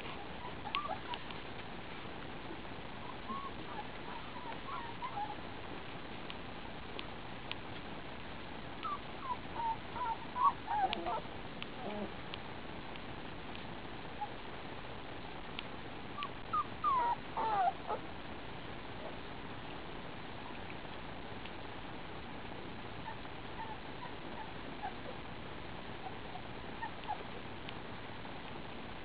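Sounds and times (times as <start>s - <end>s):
puppies whimpering: 0.0s - 1.3s, 3.0s - 5.4s, 8.8s - 11.2s, 16.2s - 18.1s, 23.0s - 25.2s, 26.0s - 27.3s.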